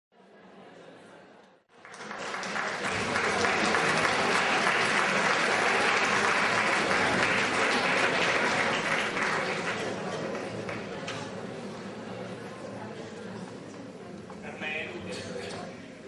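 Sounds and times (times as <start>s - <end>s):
audience applauding: 1.7s - 11.0s.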